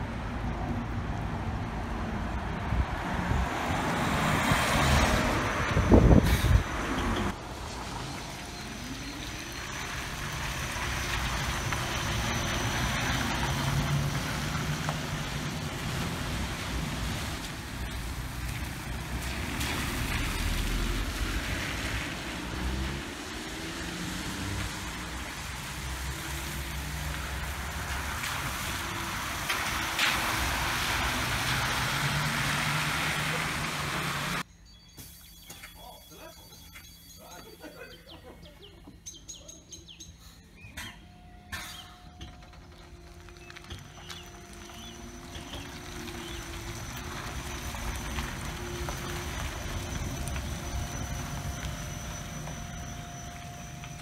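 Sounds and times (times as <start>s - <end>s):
street traffic noise: 0.0s - 54.0s
bus tyres hissing on wet asphalt: 3.8s - 34.4s, 43.3s - 54.0s.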